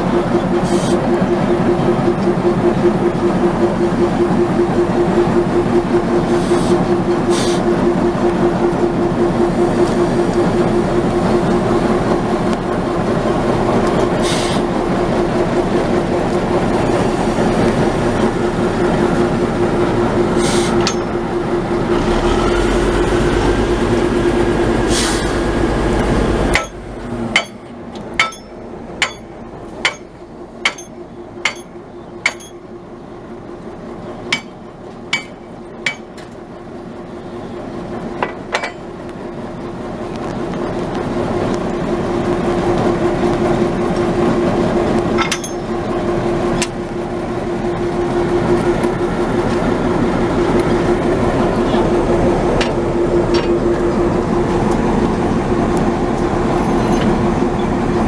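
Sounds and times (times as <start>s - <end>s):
diesel locomotive idling: 0.0s - 58.0s.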